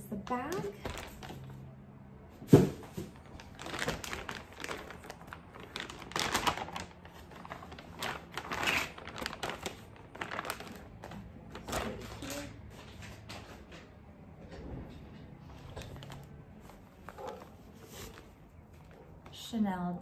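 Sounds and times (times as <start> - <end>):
plastic bag crinkling: 0.3 - 1.6, 3.0 - 12.5, 15.6 - 19.0.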